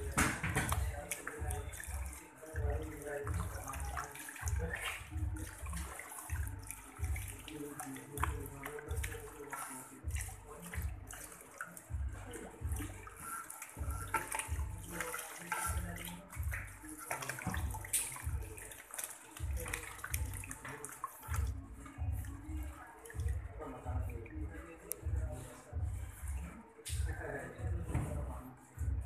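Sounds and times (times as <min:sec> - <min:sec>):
water spraying into a sink: 0:00.0 - 0:21.6.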